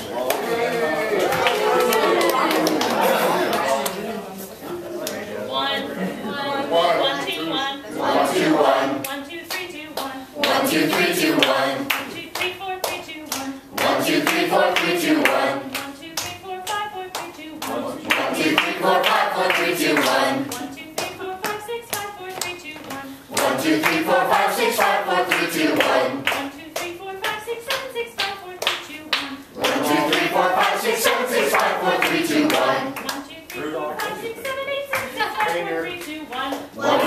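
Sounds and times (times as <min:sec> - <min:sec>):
group singing warm-up phrases: 0:00.0 - 0:37.0
hand claps: 0:31.5 - 0:36.7.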